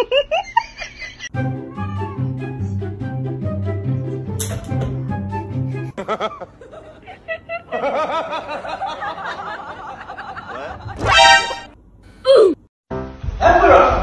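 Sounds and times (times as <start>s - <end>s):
person snickering and laughing: 0.0s - 1.3s.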